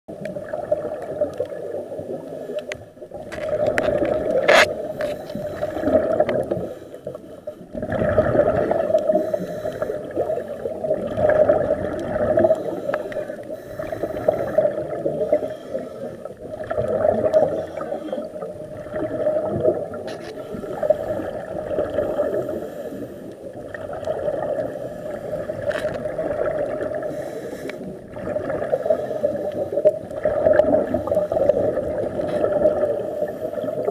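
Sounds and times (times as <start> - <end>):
underwater bubbling exhalation: 0.1 - 33.9.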